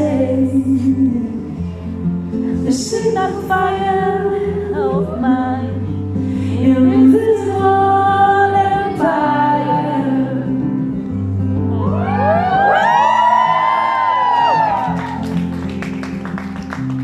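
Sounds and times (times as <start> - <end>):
woman singing: 0.0 - 10.9
guitar: 0.0 - 17.0.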